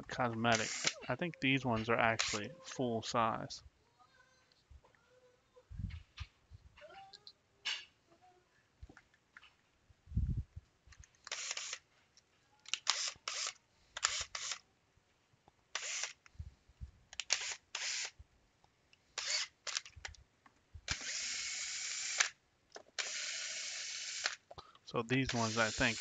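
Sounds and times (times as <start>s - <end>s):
cordless drill whining: 0.5s - 1.0s, 2.2s - 2.4s, 11.3s - 11.8s, 12.7s - 14.6s, 15.8s - 16.2s, 17.2s - 18.1s, 19.2s - 19.9s, 20.9s - 22.3s, 23.0s - 24.4s, 25.3s - 26.0s.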